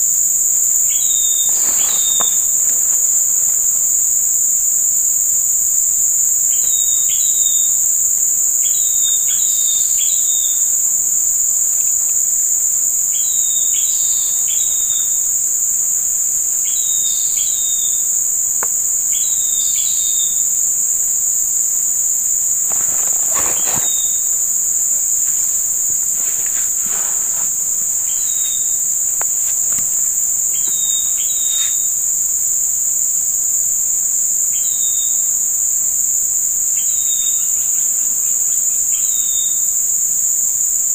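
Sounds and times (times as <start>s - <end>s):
short insect chirps: 0.0s - 16.0s, 16.6s - 40.0s
insects droning: 0.0s - 40.9s.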